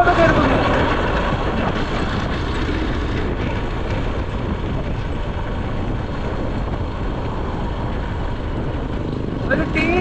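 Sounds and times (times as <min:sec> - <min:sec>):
motorcycle engine running: 0:00.0 - 0:10.0
road noise: 0:00.0 - 0:10.0
wind buffeting microphone: 0:00.0 - 0:10.0.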